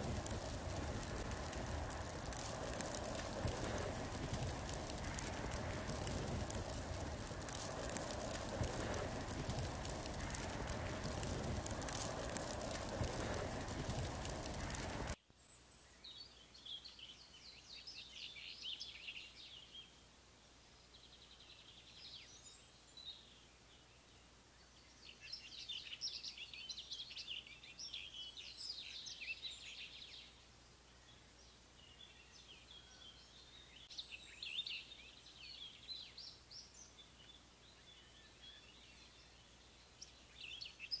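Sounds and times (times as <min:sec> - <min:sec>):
faint high-pitched bird chirping: 0:20.8 - 0:41.0.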